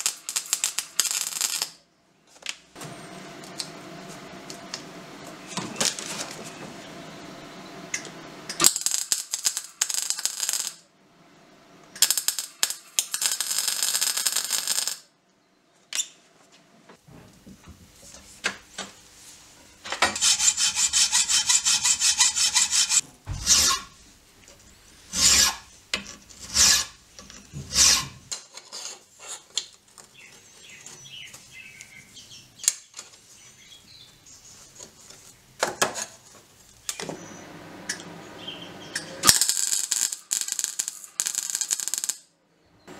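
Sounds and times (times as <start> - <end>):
hacksaw cutting steel: 20.0 - 24.0, 25.1 - 25.7, 26.4 - 27.0, 27.6 - 28.9
file rasping on steel: 20.1 - 24.0, 25.1 - 25.7, 26.4 - 27.0, 27.6 - 28.2.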